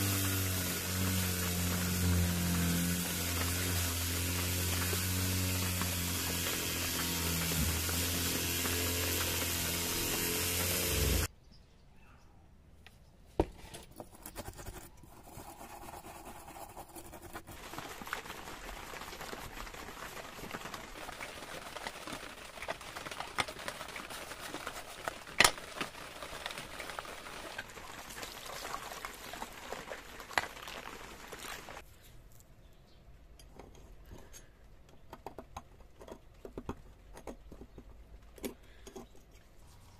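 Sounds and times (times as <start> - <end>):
brush swishing in soapy liquid: 15.1 - 31.8.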